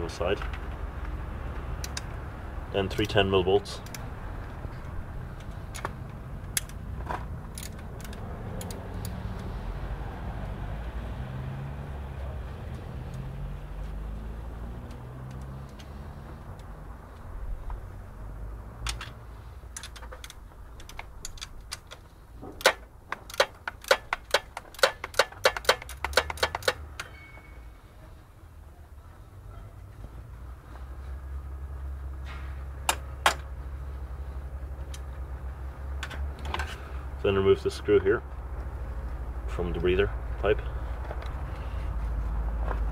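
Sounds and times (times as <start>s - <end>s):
hand ratchet clicking: 22.6s - 27.1s.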